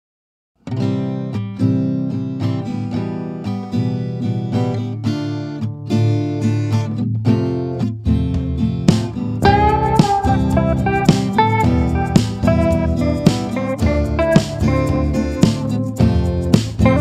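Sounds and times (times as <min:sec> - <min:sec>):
acoustic guitar playing: 0:00.6 - 0:17.0.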